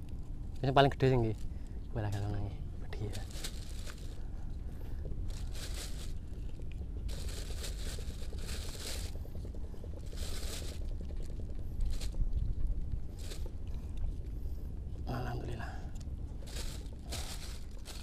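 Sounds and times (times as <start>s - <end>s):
plastic bag crinkling: 3.0s - 4.2s, 5.2s - 6.5s, 7.1s - 9.2s, 10.0s - 12.2s, 13.1s - 13.5s, 16.4s - 18.0s.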